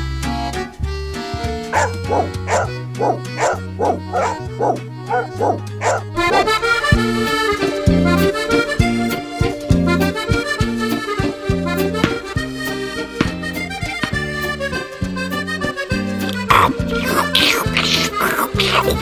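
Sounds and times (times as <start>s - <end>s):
accordion music: 0.0s - 19.0s
small dog yapping: 1.8s - 6.1s.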